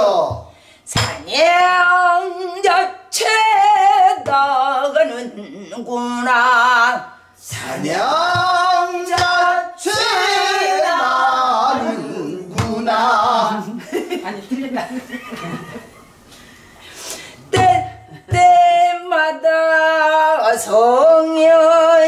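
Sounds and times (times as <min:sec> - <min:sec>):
group singing phrase back: 0:00.0 - 0:13.8
woman singing with vibrato: 0:00.0 - 0:13.8, 0:17.5 - 0:22.0.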